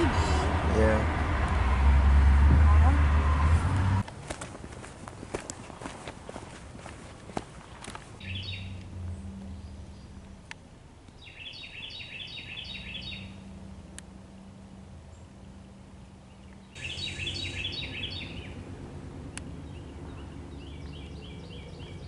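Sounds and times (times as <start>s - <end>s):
songbird chirping: 5.3s - 22.0s
low background rumble: 8.0s - 12.0s.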